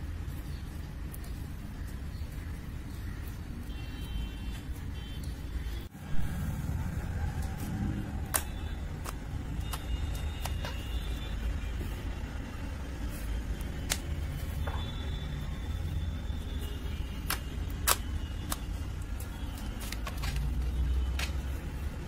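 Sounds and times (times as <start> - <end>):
steady low rumble: 5.9 - 10.4.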